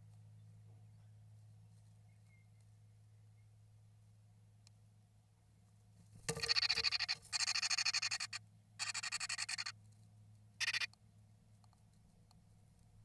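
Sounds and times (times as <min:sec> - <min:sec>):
bird buzzy chattering calls: 0:06.3 - 0:09.8, 0:10.6 - 0:10.9.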